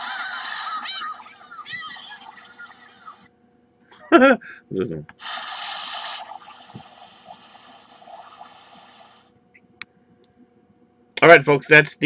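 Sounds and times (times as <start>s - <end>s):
electronic watery hissing rush: 5.2s - 9.3s.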